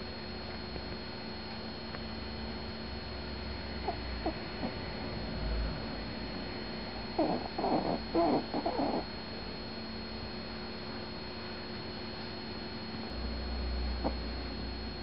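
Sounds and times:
dog whimpering softly: 7.2 - 9.1.

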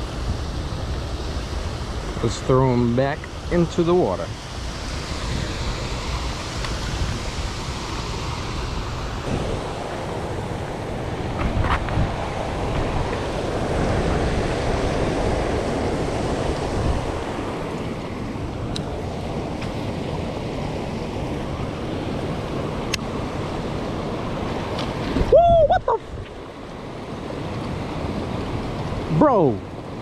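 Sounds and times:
water rushing over spillway: 0.0 - 30.0
wind buffeting microphone: 0.0 - 30.0.

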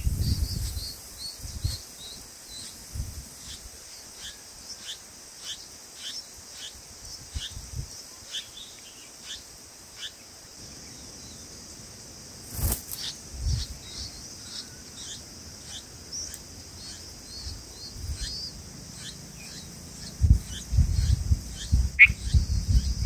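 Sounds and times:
high-pitched insect drone: 9.2 - 23.0
falling bird chirps: 12.5 - 23.0.

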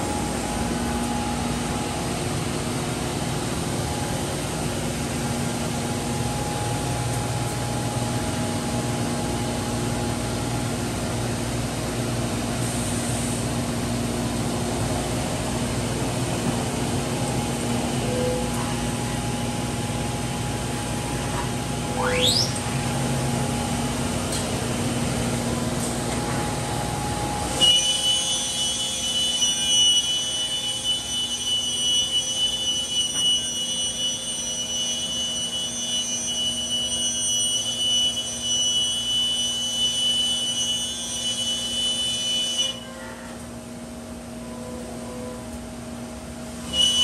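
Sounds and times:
cnc router machine hum: 0.0 - 42.8, 43.4 - 47.0
high-pitched whine: 13.4 - 42.9
rising whine: 14.3 - 34.0.

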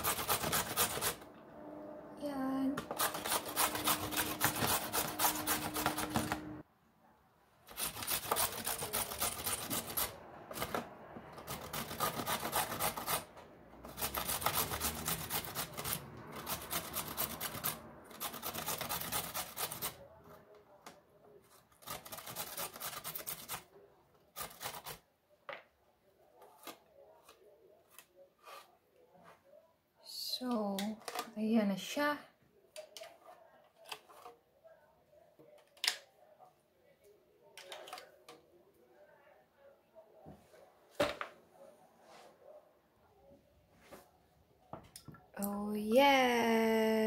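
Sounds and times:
carrot grated on metal grater: 0.0 - 1.2, 2.8 - 6.6.

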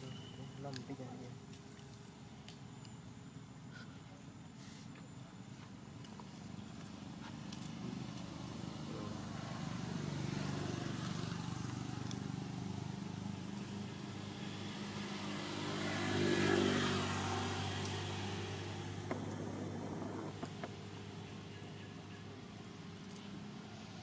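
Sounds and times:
vehicle engine passing by: 7.4 - 22.4.

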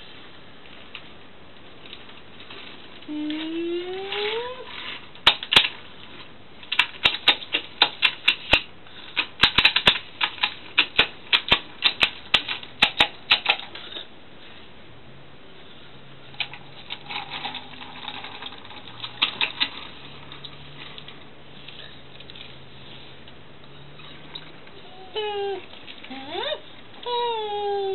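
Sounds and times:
toy trains clicking on wood: 6.7 - 13.8, 16.4 - 21.2.

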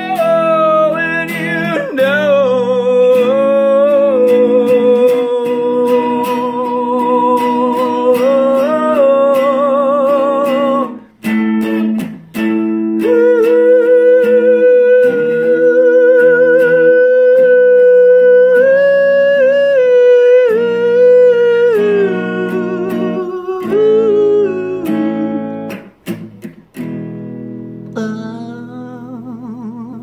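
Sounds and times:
man singing a held note: 0.0 - 11.1, 13.0 - 25.6
electric guitar chords: 0.0 - 29.9.

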